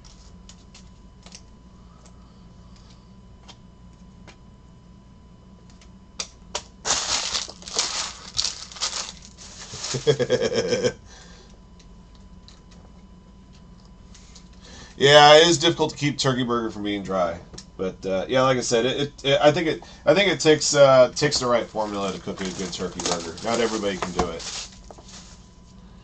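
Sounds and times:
cards rustling and clacking: 0:06.9 - 0:10.2, 0:21.6 - 0:25.4.

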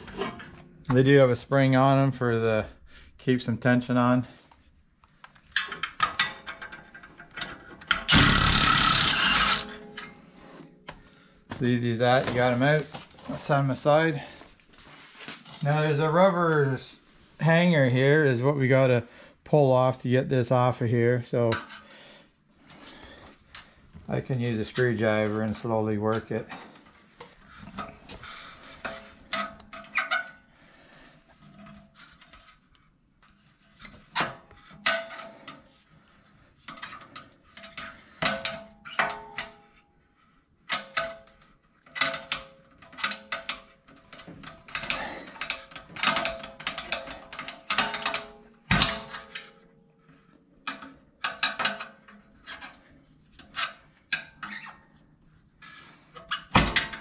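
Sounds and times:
screwdriver scraping metal and rubber: 0:08.1 - 0:09.9.

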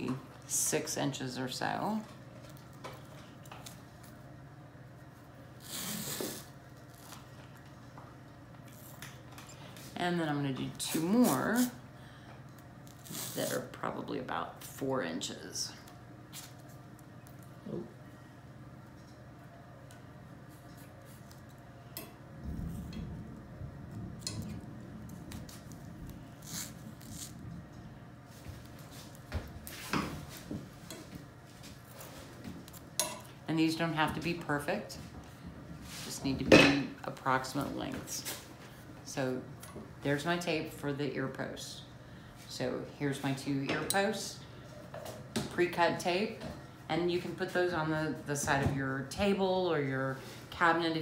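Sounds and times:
adhesive tape ripping off roll: 0:05.6 - 0:07.3, 0:12.8 - 0:13.7, 0:25.3 - 0:27.4.

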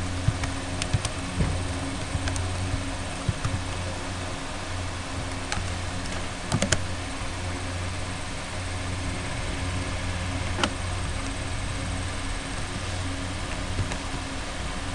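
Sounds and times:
steady low hum and hiss: 0:00.0 - 0:14.9
keyboard keystrokes: 0:06.5 - 0:06.8.

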